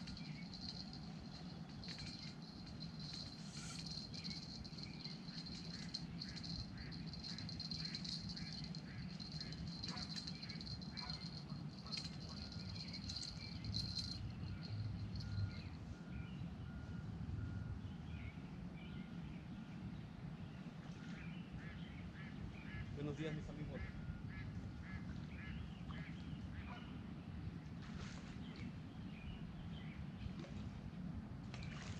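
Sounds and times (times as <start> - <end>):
birds chirping: 0.0 - 15.8
steady low hum: 0.0 - 17.8.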